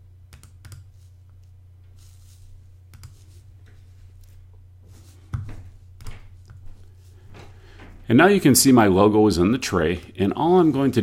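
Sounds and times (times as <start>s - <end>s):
low electrical hum: 0.0s - 11.0s
computer mouse clicks: 0.3s - 1.5s, 2.9s - 3.2s.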